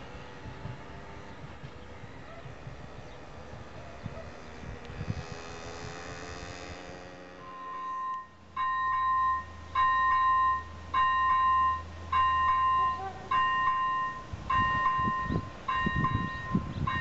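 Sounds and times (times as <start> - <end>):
level crossing warning chime: 7.4 - 17.0.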